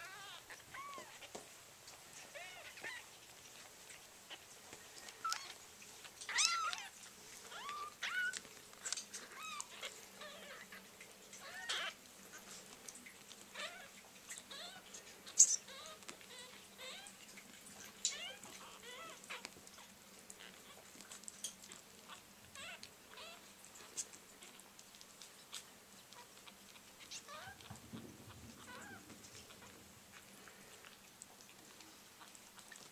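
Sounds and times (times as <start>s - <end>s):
kittens mewing: 6.2s - 12.5s, 25.5s - 31.0s.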